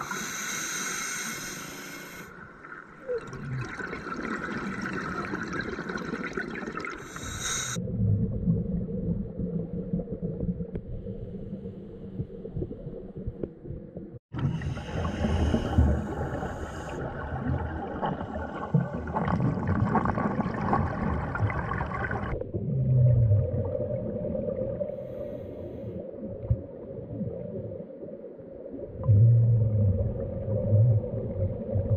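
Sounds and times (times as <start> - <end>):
underwater exhalation bubbling: 3.0 - 7.8, 14.4 - 24.9.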